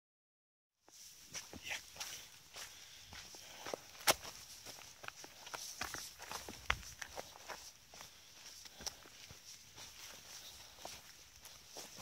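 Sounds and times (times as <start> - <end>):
running footfalls: 1.4 - 12.0.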